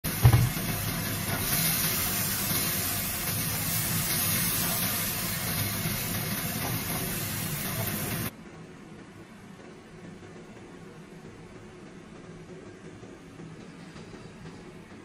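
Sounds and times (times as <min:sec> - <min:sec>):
food sizzling in a wok: 0:00.0 - 0:08.3.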